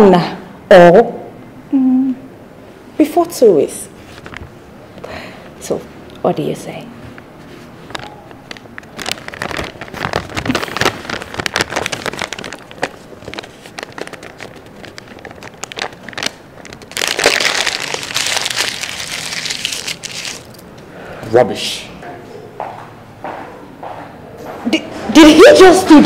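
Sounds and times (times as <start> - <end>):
paper crinkling: 4.0 - 4.6, 7.4 - 20.6
paper tearing: 8.9 - 20.6.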